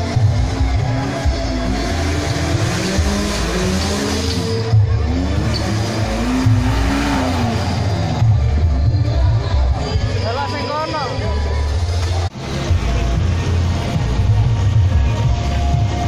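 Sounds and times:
engine revving: 0.0 - 9.8.

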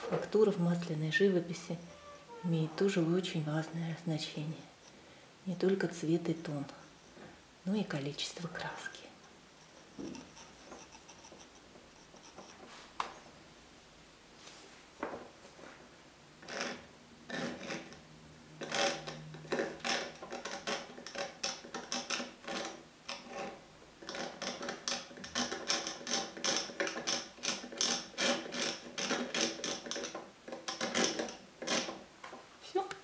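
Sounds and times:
painting tool dabbing on canvas: 9.6 - 13.2.

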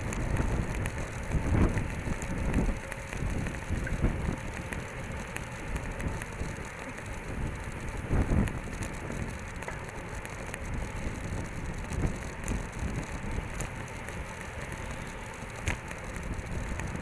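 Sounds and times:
wind rushing over microphone: 0.0 - 9.6, 10.5 - 13.8
tyre and road rumble: 0.0 - 17.0.

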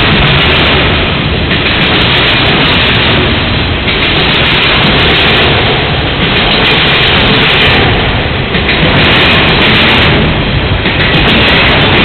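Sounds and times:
freight train wheels on rail: 0.0 - 12.0.

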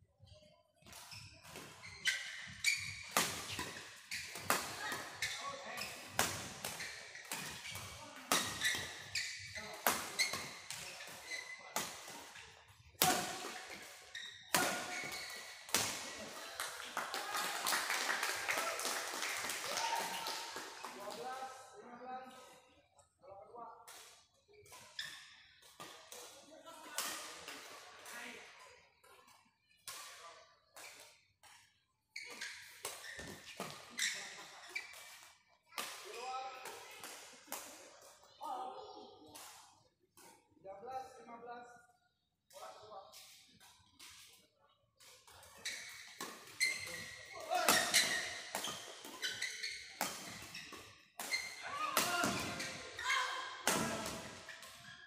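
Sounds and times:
shoes squeaking on court: 0.8 - 17.7, 24.1 - 26.4, 30.6 - 37.0, 45.0 - 55.0
rackets hitting shuttlecock: 3.1 - 5.4, 13.0 - 16.8, 46.0 - 54.9.

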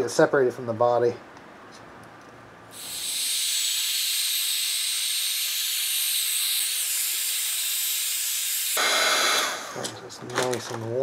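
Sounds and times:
heat gun blowing air: 2.7 - 9.9.

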